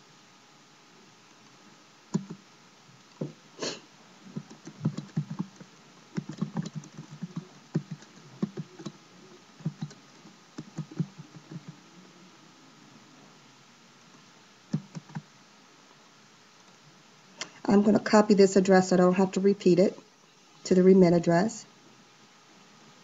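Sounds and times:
typing on computer keyboard: 2.1s - 2.4s, 4.4s - 9.0s, 9.6s - 10.0s, 10.6s - 11.8s, 14.7s - 15.2s.

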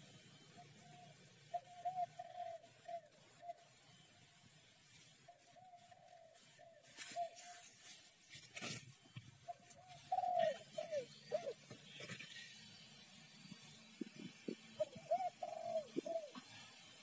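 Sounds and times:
dove cooing: 0.5s - 3.8s, 9.5s - 12.2s, 14.0s - 16.9s.

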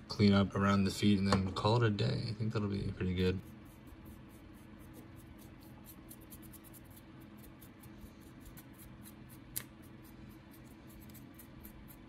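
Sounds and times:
steady low hum: 0.0s - 12.0s
paint brush scratchy strokes: 3.1s - 12.0s.

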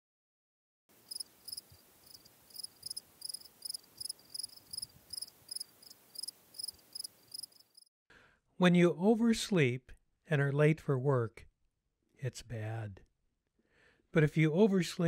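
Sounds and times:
cricket chirping: 1.0s - 7.9s.

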